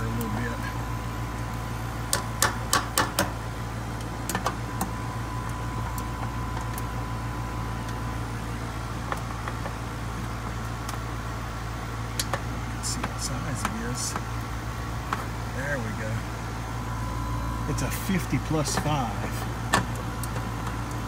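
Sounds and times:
air conditioner humming: 0:00.0 - 0:21.0.

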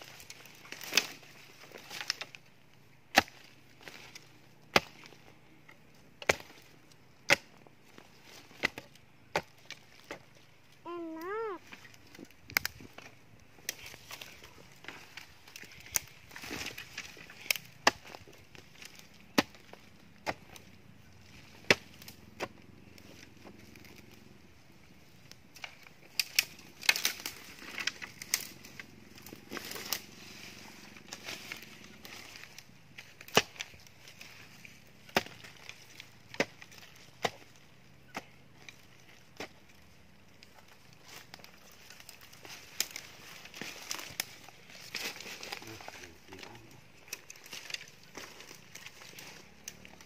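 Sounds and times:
hoe chopping into soil: 0:03.1 - 0:05.2, 0:06.2 - 0:06.7, 0:15.9 - 0:18.2, 0:32.3 - 0:34.4, 0:35.1 - 0:35.7.

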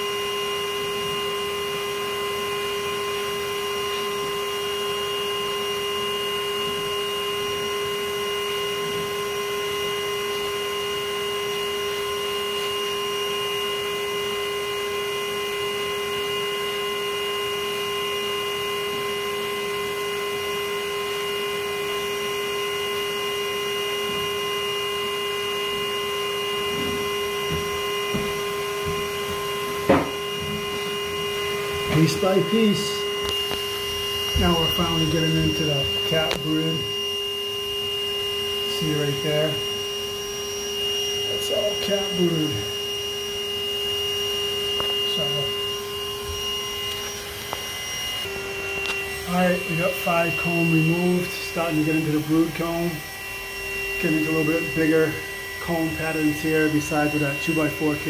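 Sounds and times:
vacuum motor humming: 0:00.0 - 0:58.0
sharp knocks: 0:26.7 - 0:30.6.

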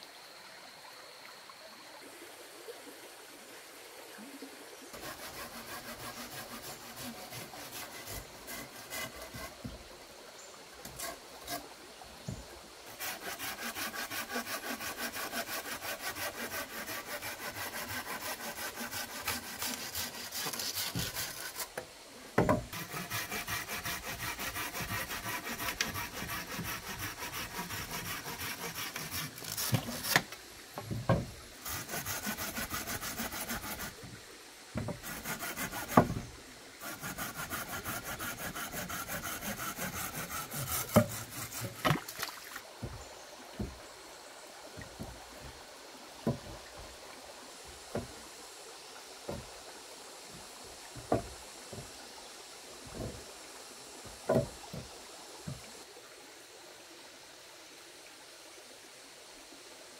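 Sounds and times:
hand saw cutting wood: 0:05.0 - 0:09.8, 0:10.8 - 0:11.7, 0:12.9 - 0:21.8, 0:22.4 - 0:30.4, 0:31.1 - 0:34.1, 0:34.8 - 0:36.2, 0:36.8 - 0:42.1.

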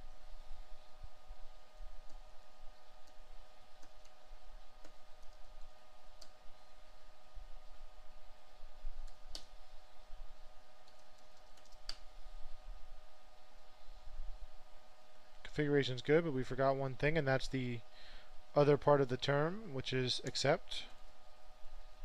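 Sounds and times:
faint steady hum: 0:00.0 - 0:22.0
computer keyboard typing: 0:03.8 - 0:04.2, 0:10.8 - 0:12.0.

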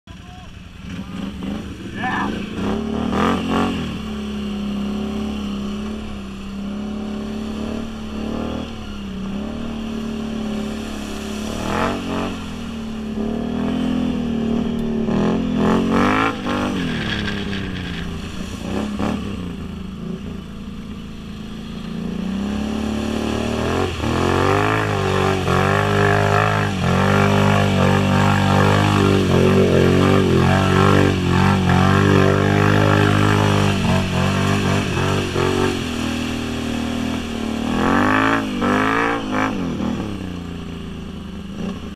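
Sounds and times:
quad engine revving: 0:00.1 - 0:20.6, 0:21.2 - 0:40.8.

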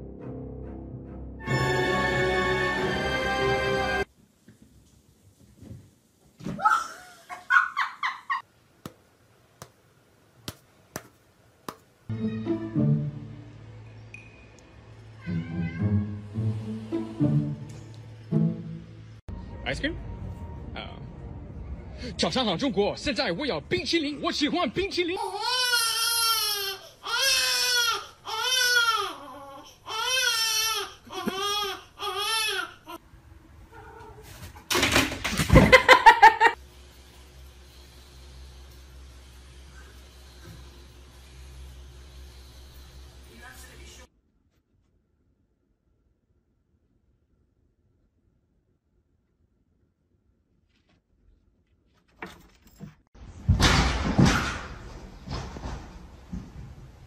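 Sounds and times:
girl laughing: 0:06.6 - 0:08.4, 0:35.5 - 0:36.6
baby crying: 0:25.2 - 0:33.0.

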